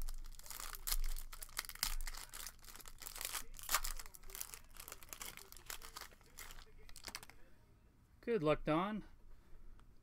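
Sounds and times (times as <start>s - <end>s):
foil pack crinkling: 0.0s - 7.4s.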